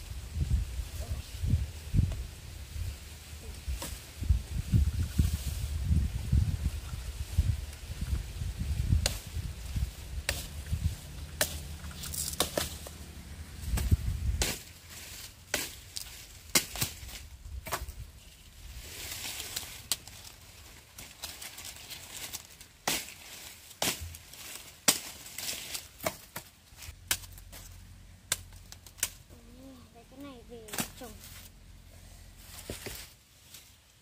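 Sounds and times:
low rumble: 0:00.0 - 0:19.1
blade chopping sugarcane: 0:09.0 - 0:09.3, 0:10.2 - 0:10.6, 0:11.4 - 0:12.9, 0:13.7 - 0:14.8, 0:15.5 - 0:18.0, 0:22.3 - 0:23.2, 0:23.8 - 0:27.7, 0:28.3 - 0:29.2.

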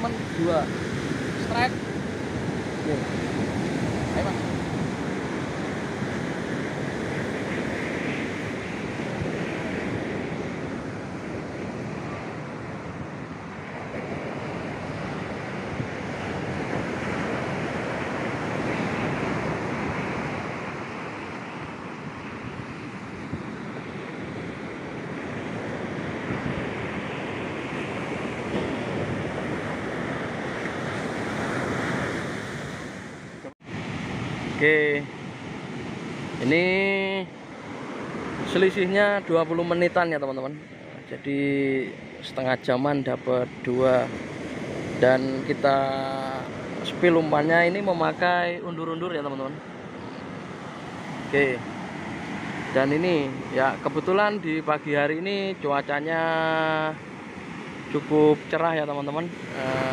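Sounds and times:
wind buffeting microphone: 0:00.0 - 0:36.7
surf breaking on beach: 0:00.0 - 0:59.9.

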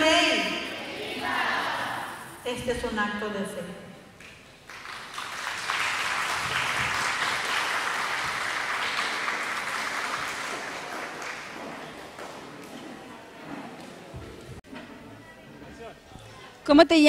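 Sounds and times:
audience applauding: 0:04.6 - 0:12.8.

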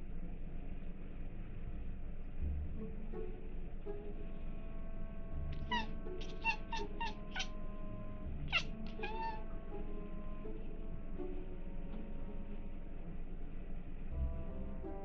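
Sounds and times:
soft background music: 0:00.0 - 0:15.0
cat meowing: 0:05.6 - 0:07.6, 0:08.5 - 0:09.5.

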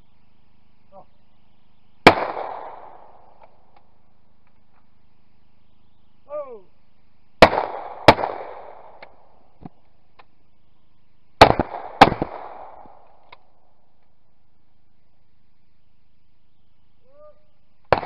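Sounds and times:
shotgun shots with echo: 0:02.0 - 0:03.3, 0:07.4 - 0:09.1, 0:11.4 - 0:13.0.

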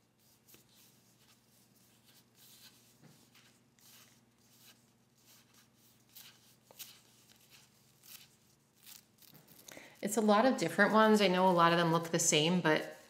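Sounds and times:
sticker tape rustling and crinkling: 0:00.2 - 0:09.8.

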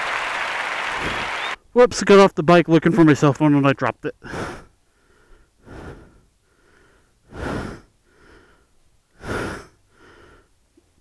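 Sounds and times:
man breathing heavily: 0:04.2 - 0:10.6.

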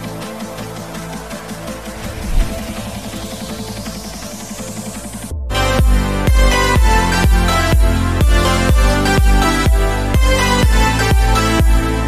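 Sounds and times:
sustained synth chords: 0:00.0 - 0:12.0
deep kick drum: 0:05.5 - 0:12.0.

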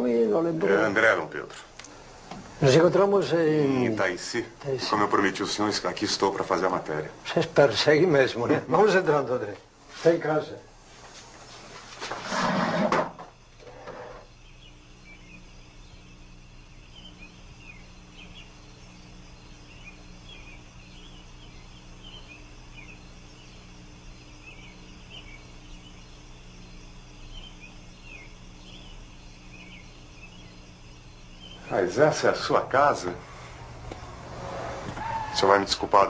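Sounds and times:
low background hum: 0:00.0 - 0:36.0
bird chirps: 0:14.2 - 0:32.4.

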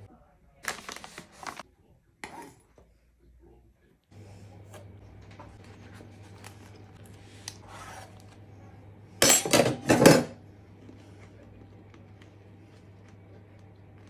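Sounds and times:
low steady hum: 0:02.9 - 0:14.0.

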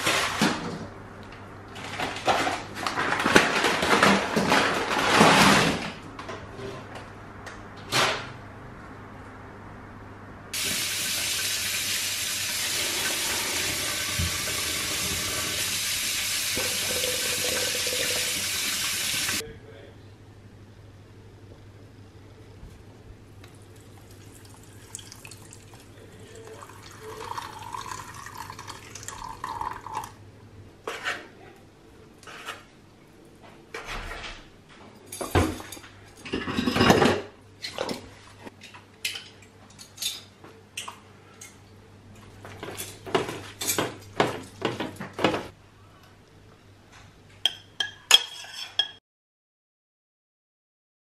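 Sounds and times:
liquid pouring: 0:10.8 - 0:19.4, 0:23.5 - 0:30.2
utensils and bowls clinking: 0:35.1 - 0:38.0, 0:47.4 - 0:49.0.

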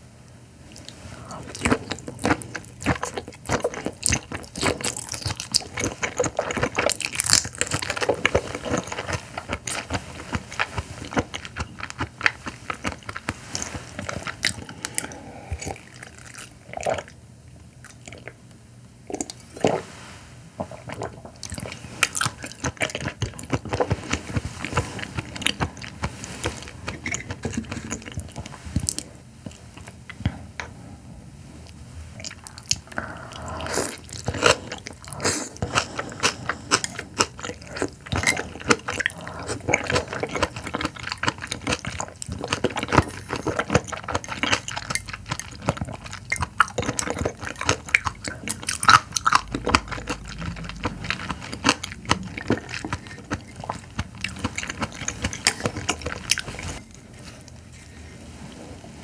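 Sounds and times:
wet chewing clicks and smacks: 0:00.8 - 0:17.2, 0:20.7 - 0:30.2, 0:32.2 - 0:56.9
person sipping wine: 0:08.4 - 0:17.2, 0:23.8 - 0:38.4.

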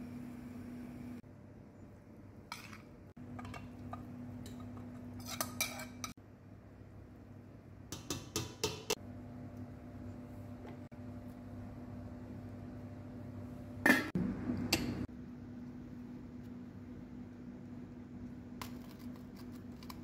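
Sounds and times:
metal spoon scraping dishes: 0:02.5 - 0:06.2
steady low hum: 0:08.9 - 0:20.0.

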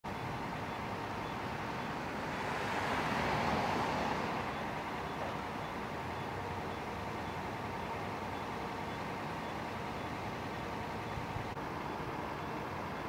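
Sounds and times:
low engine hum: 0:00.0 - 0:13.0
road vehicle passing by: 0:00.4 - 0:07.8.

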